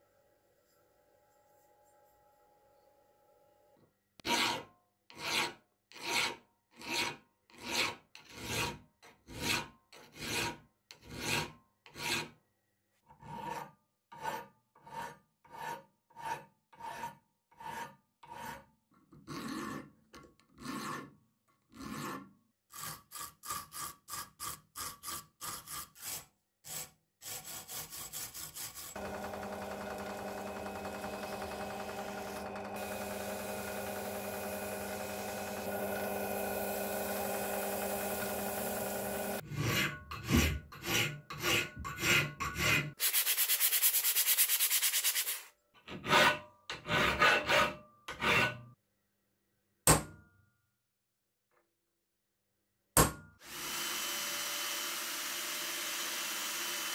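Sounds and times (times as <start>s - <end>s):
file scraping metal: 4.2s - 12.4s, 13.1s - 43.7s, 44.8s - 48.8s
drill press motor hum: 29.0s - 39.4s.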